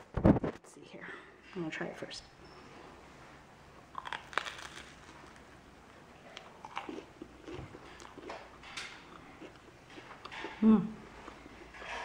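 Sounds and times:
chewing with small crunches: 3.8s - 12.0s
biting crunchy sandwich: 3.9s - 5.5s, 6.4s - 8.4s.

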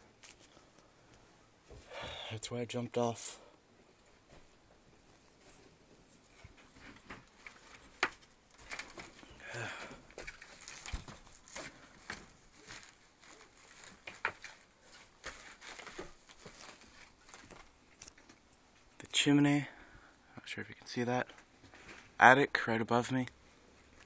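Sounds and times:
footsteps crunching over debris: 6.5s - 18.2s.

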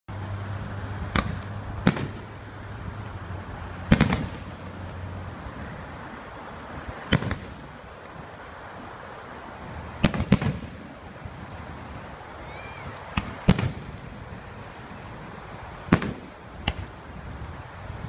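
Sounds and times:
fireworks bangs: 1.0s - 3.1s, 3.8s - 5.1s, 7.0s - 8.0s, 9.9s - 11.1s, 12.4s - 14.3s, 15.8s - 17.0s
fireworks crackle: 1.0s - 17.8s.

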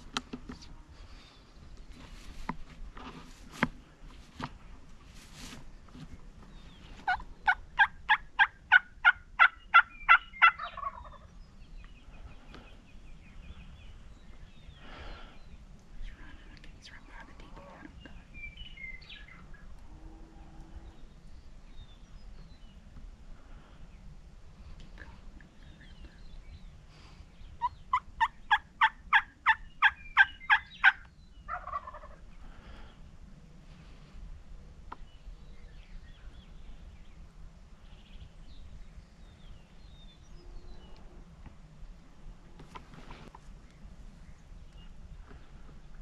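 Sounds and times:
low steady rumble: 0.0s - 46.0s
small birds chirping: 0.4s - 2.7s, 6.0s - 7.8s, 9.4s - 20.1s, 20.7s - 33.2s, 34.8s - 46.0s.

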